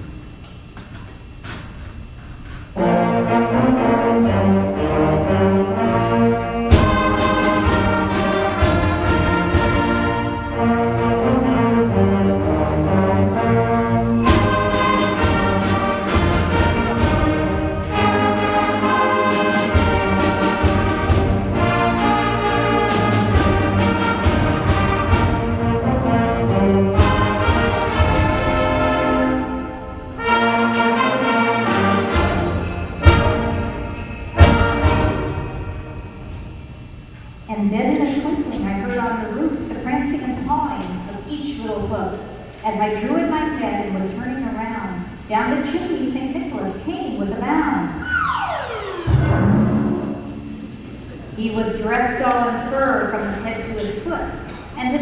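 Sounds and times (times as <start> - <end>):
brass sustained chords: 2.8 - 36.8, 48.0 - 52.4
concert band playing: 2.8 - 36.9, 48.0 - 51.4
sharp percussion hit: 6.7 - 10.4, 14.1 - 25.9, 31.6 - 36.9, 48.0 - 51.1.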